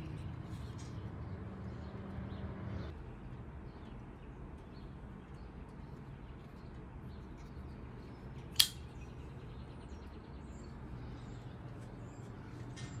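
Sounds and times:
low background hum: 0.0 - 13.0
knife blade locking click: 8.5 - 8.8.

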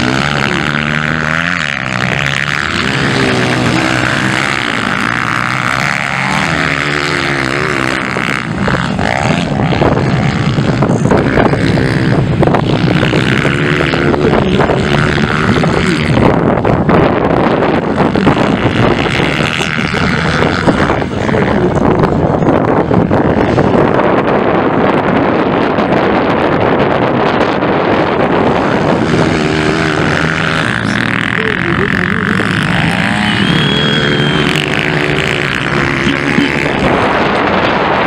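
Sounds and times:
dirt bike engines revving: 0.0 - 38.0.

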